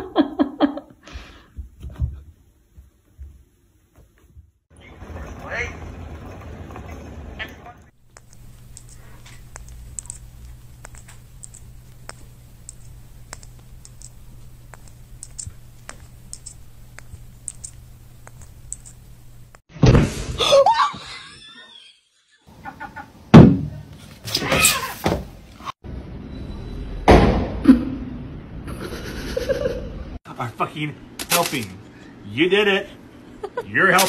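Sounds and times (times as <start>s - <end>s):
low steady hum: 1.2s - 19.6s.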